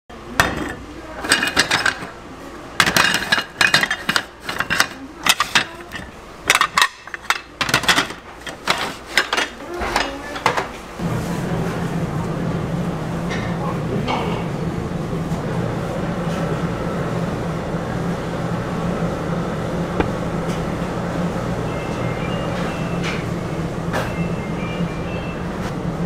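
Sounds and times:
metal moulds clinking and knocking: 0:00.4 - 0:02.1, 0:02.8 - 0:10.6.

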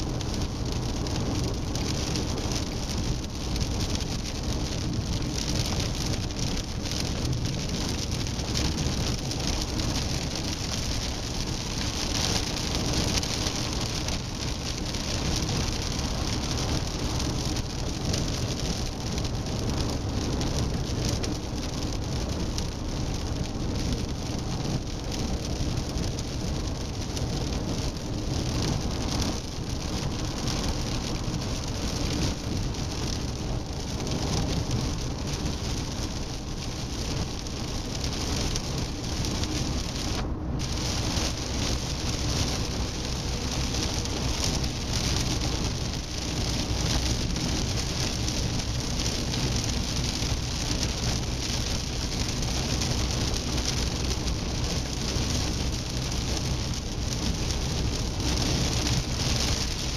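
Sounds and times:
car engine and road rumble: 0:00.0 - 0:59.9
tyre and wind hiss: 0:23.2 - 0:59.9.

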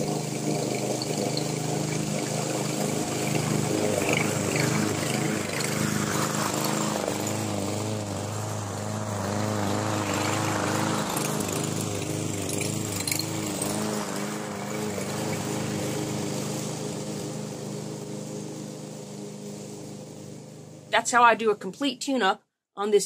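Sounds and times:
lawn mower engine cutting grass: 0:00.0 - 0:22.2.

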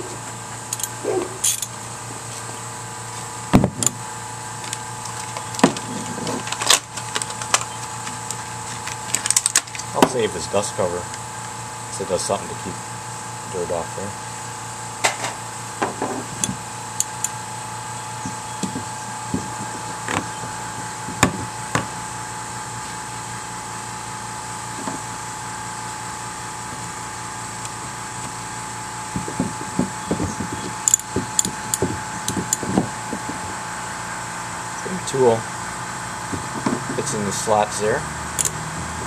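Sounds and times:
steady hum: 0:00.0 - 0:39.0
metal tools clicking and knocking: 0:00.7 - 0:01.8, 0:30.8 - 0:31.6.

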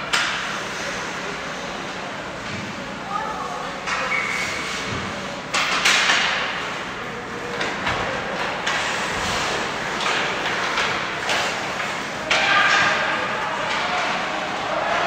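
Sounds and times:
hockey sticks and puck knocking: 0:00.1 - 0:00.5, 0:05.5 - 0:06.7, 0:07.5 - 0:15.0
skates scraping ice: 0:07.7 - 0:15.0.

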